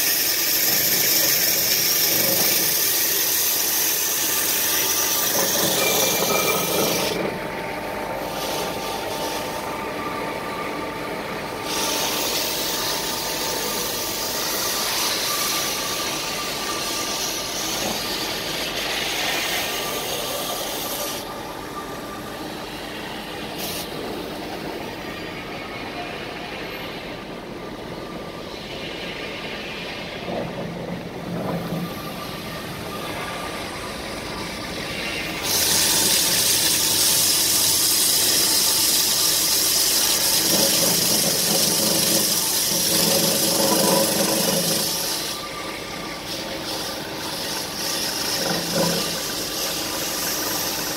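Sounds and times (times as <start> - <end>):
hiss of blade cutting pipe: 0.0 - 7.2, 8.2 - 9.6, 11.6 - 21.2, 23.5 - 24.0, 35.0 - 50.9
band saw running: 0.0 - 22.8, 30.8 - 50.9.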